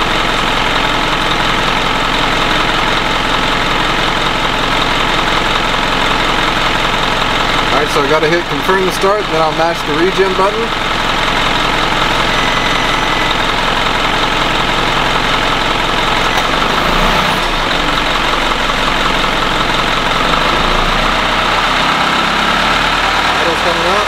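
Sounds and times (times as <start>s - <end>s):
diesel engine idling: 0.0s - 24.0s.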